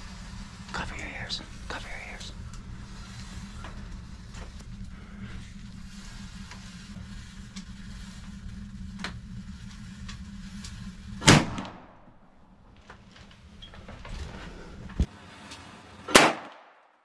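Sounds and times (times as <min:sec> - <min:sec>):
steady low hum: 0:00.0 - 0:15.4
air rifle shot: 0:16.1 - 0:16.7.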